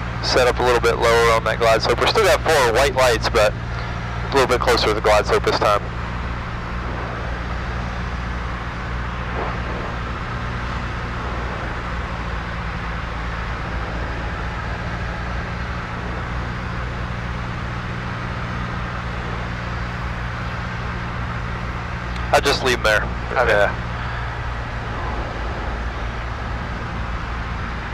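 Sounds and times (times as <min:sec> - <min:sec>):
propeller plane engine drone: 0:00.0 - 0:27.9
airflow noise: 0:01.0 - 0:27.9.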